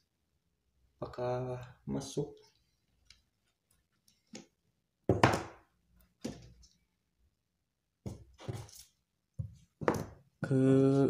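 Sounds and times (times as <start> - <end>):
objects knocking and thunking: 4.2 - 6.8, 9.4 - 10.4.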